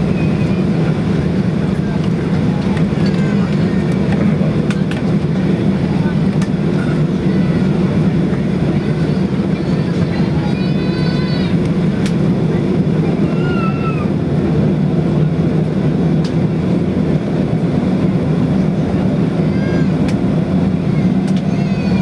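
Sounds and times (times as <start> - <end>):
airplane cabin noise: 0.0 - 22.0
faint passenger voices: 0.0 - 22.0.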